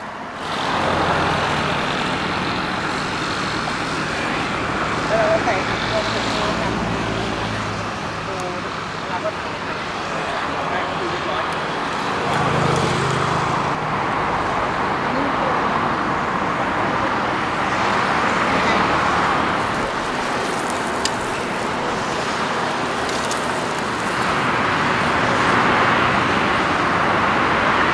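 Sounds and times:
road traffic passing: 0.0s - 27.9s.

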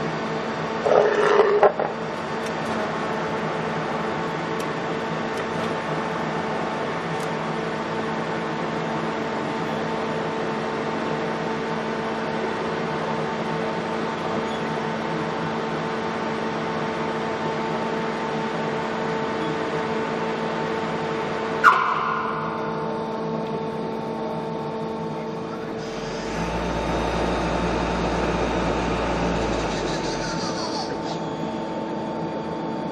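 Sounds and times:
machine tool humming: 25.0s - 32.9s.

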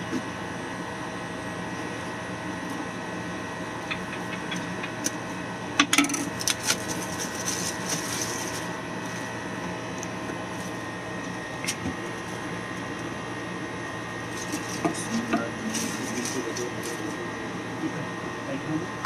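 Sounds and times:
steady hum: 0.0s - 19.0s
plastic wrap being torn: 6.4s - 8.7s.

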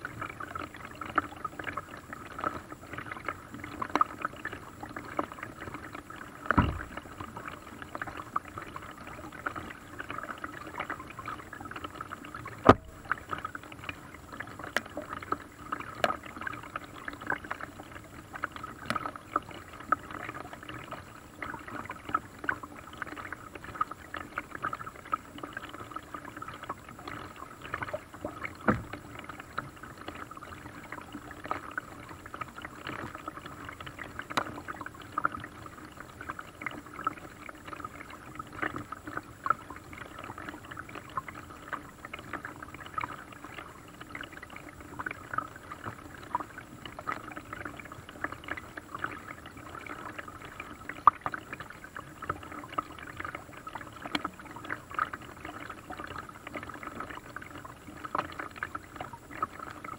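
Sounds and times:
water dripping and trickling: 0.0s - 59.9s
paddle splashing in water: 6.5s - 7.2s, 12.4s - 13.6s
sharp knocks: 6.6s - 7.0s, 12.6s - 13.0s.

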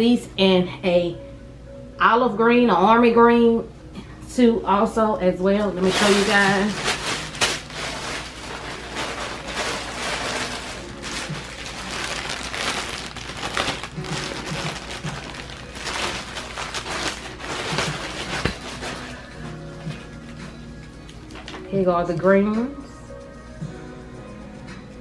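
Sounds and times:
plastic bag crinkling: 5.8s - 19.5s.

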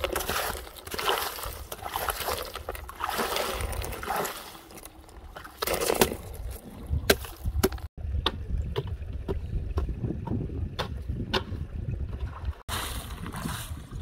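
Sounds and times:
stone crunching ice: 0.0s - 7.9s
water splashing: 0.0s - 7.9s.

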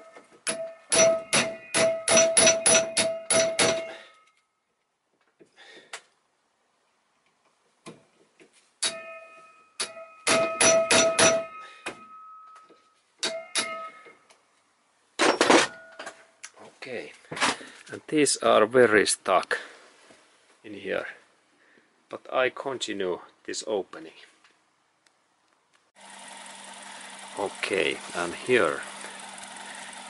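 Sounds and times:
hammer striking steel driver: 0.4s - 4.2s, 8.8s - 12.6s, 13.2s - 14.1s.

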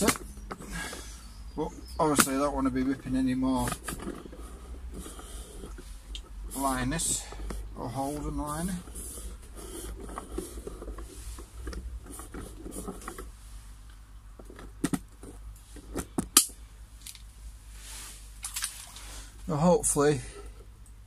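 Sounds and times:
pond liner rustling and creaking: 0.0s - 13.4s, 18.1s - 20.8s.

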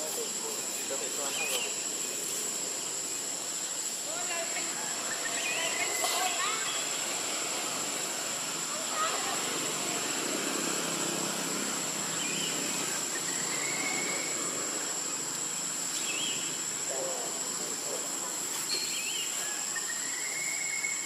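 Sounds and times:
high-pitched insect drone: 0.0s - 21.0s
hiss: 0.0s - 21.0s
bird chirps: 0.5s - 2.4s, 12.1s - 14.4s, 18.6s - 21.0s.

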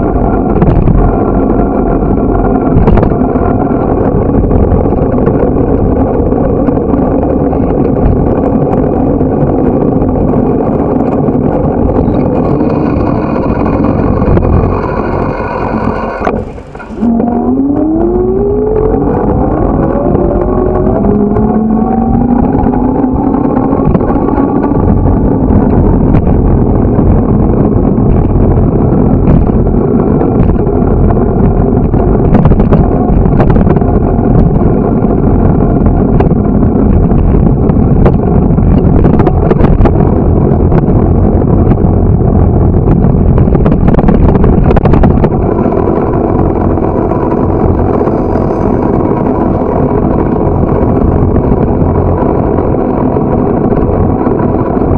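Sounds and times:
wind rumble on microphone: 0.0s - 54.9s
engine rising in pitch: 10.2s - 28.0s.

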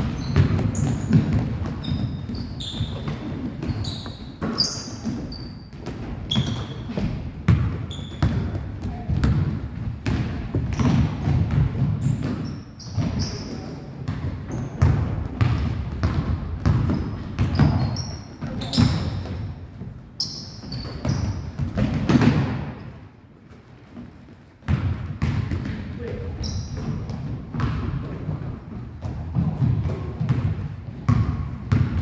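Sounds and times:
basketball dribbling on hardwood: 0.0s - 12.4s, 14.1s - 19.9s, 20.6s - 22.6s, 24.6s - 25.8s, 26.7s - 32.0s
sneakers squeaking: 0.0s - 32.0s.

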